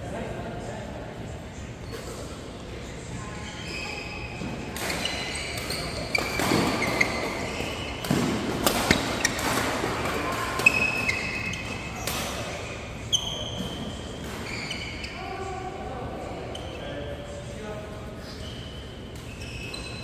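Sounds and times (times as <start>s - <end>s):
shoes squeaking on court: 1.8s - 15.5s, 16.4s - 17.3s, 18.2s - 20.0s
racket hitting shuttlecock: 4.8s - 12.5s.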